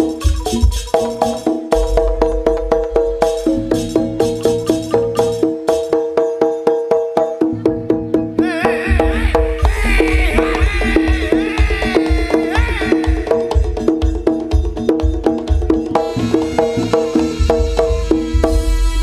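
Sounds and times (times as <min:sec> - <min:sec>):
low drum beat: 0:00.0 - 0:05.9, 0:08.8 - 0:16.2
metallophones and drums: 0:00.0 - 0:19.0
wavering high melody: 0:00.5 - 0:05.6.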